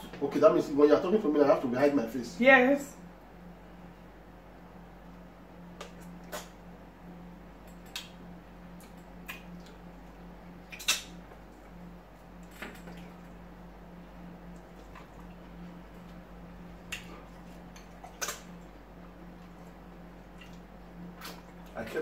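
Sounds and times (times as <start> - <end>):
steady low hum: 0.0 - 22.0
eating clicks and smacks: 5.7 - 6.6, 7.6 - 11.8, 16.8 - 21.8.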